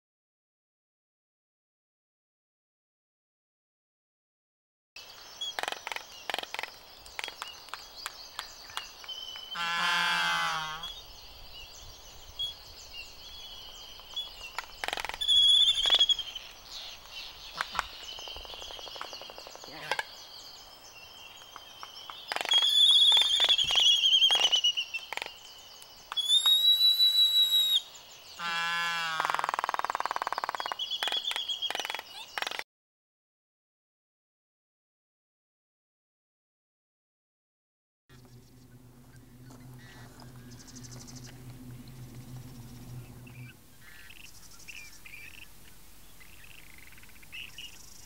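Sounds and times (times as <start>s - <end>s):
albatross bill clacks: 5.5s - 9.4s
low drawn-out bird call: 9.3s - 12.6s, 26.2s - 32.4s, 38.1s - 48.0s.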